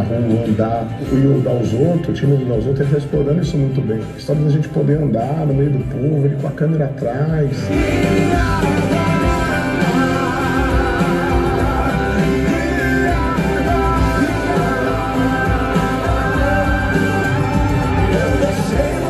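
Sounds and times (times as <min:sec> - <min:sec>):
man singing: 0:07.2 - 0:19.0
country-rock band with electric guitars: 0:07.4 - 0:19.0.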